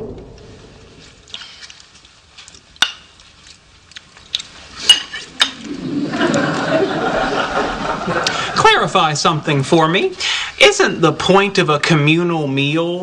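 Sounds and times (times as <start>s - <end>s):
forks scraping plates: 4.8s - 5.8s
studio audience noise: 5.7s - 10.1s.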